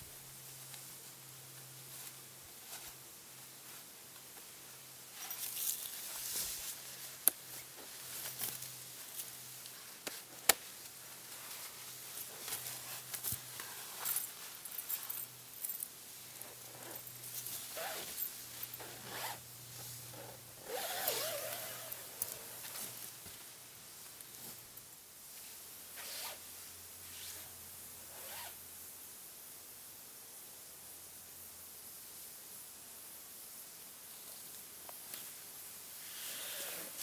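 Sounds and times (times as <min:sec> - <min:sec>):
nylon fabric rustling: 0:05.2 - 0:19.4, 0:20.1 - 0:23.4, 0:28.2 - 0:28.5
zipper zipping: 0:16.4 - 0:18.2, 0:18.8 - 0:19.4, 0:20.1 - 0:22.6, 0:26.0 - 0:26.4, 0:28.1 - 0:28.6, 0:36.1 - 0:37.0.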